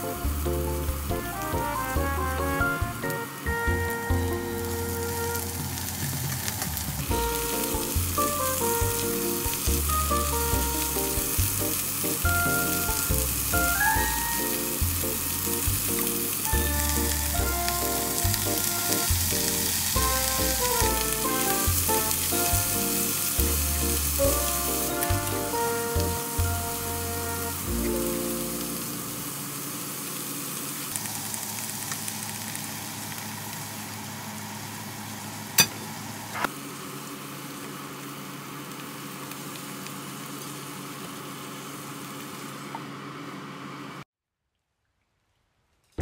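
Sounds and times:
background music: 0.0 - 29.4
food sizzling in oil: 0.0 - 42.6.

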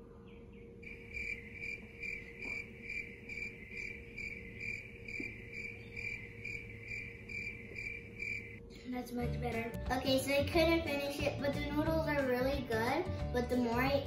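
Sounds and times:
cricket chirping: 0.8 - 8.7.

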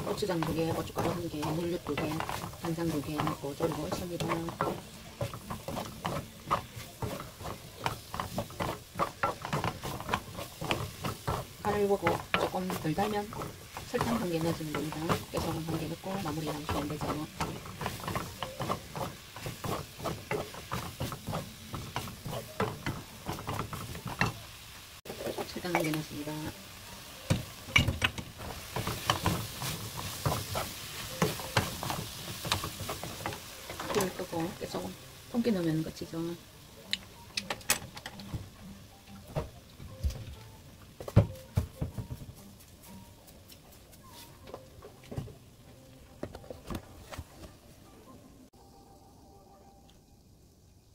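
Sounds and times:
spoon scraping and knocking wok: 0.0 - 35.5.

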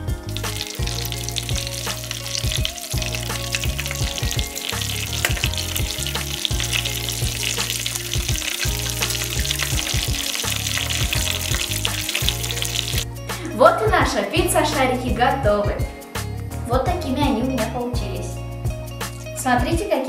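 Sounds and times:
dough deep-frying in hot oil: 0.0 - 13.0
background music: 0.0 - 20.0.

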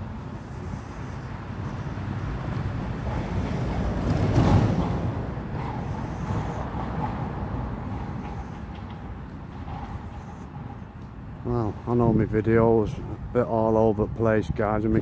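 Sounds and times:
vehicle passing close by: 0.0 - 11.1
road traffic rumble: 0.0 - 15.0.

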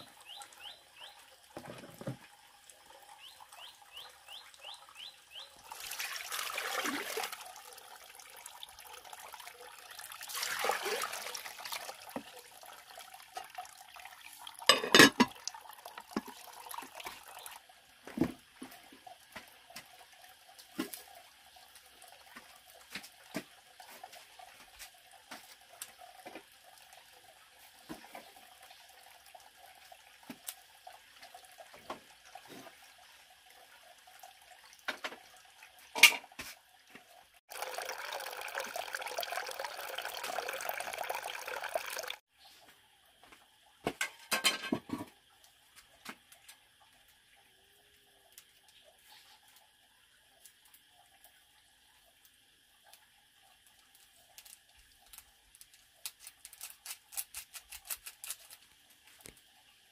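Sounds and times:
water running: 0.0 - 42.3
water splash: 10.3 - 11.8.

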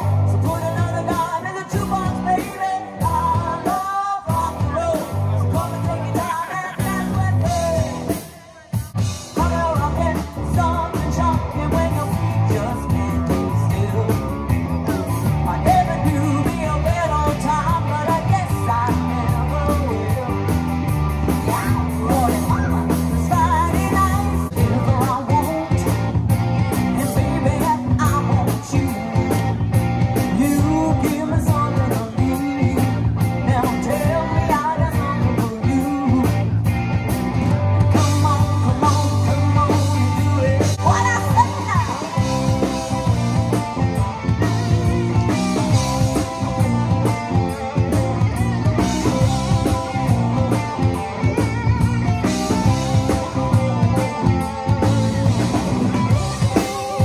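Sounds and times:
woman singing: 0.0 - 14.5, 15.4 - 20.5, 21.4 - 26.1, 26.9 - 29.5, 30.3 - 36.6, 37.9 - 43.4
live rock band playing: 0.0 - 57.0.

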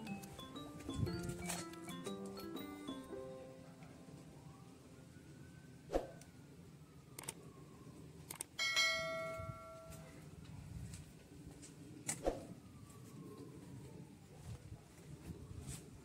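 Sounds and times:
bell chime: 0.0 - 4.1, 8.6 - 10.0
sharp click: 7.2 - 7.4.

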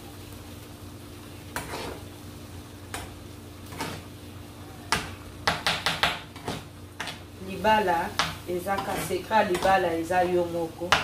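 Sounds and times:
spoon knocking on frying pan: 4.9 - 7.2.

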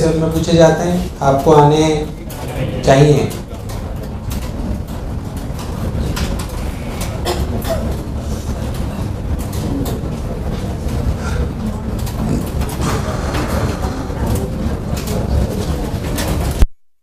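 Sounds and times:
low room rumble: 0.0 - 16.6.

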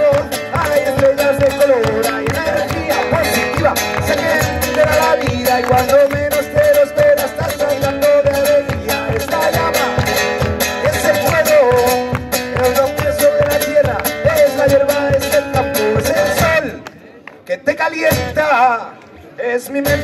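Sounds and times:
acoustic guitar strumming: 0.0 - 16.8, 17.8 - 18.7
man singing: 0.0 - 20.0.

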